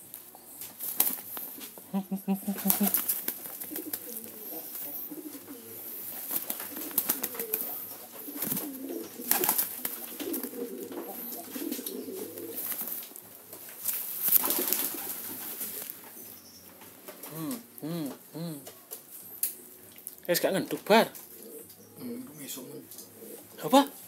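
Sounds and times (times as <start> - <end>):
pigeons cooing: 0.0 - 19.8, 20.7 - 24.0
wings rustling: 0.2 - 17.7.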